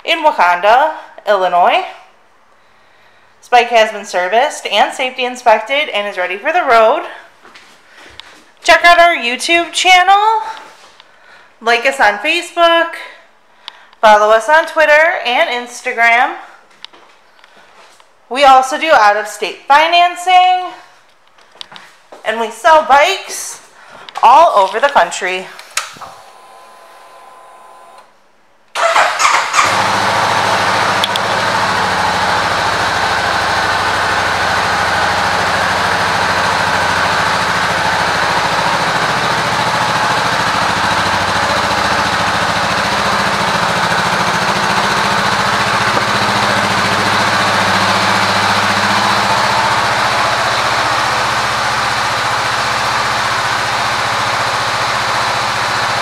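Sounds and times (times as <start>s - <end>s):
motorcycle engine starting and idling: 28.8s - 56.0s.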